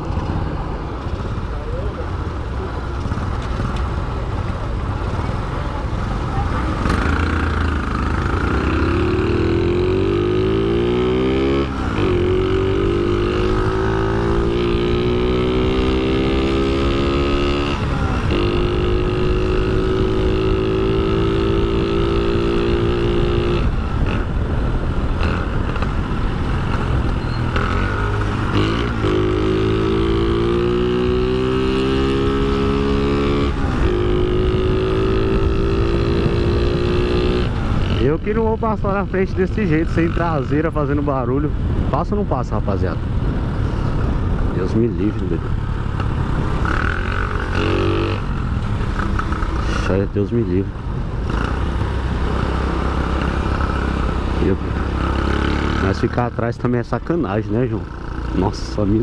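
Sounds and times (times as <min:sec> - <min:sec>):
scooter engine accelerating: 0:01.5 - 0:24.4.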